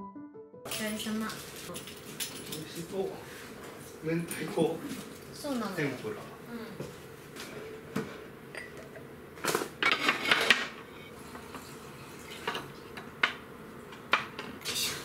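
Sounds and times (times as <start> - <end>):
ceramic plates clinking and clattering: 9.7 - 10.9.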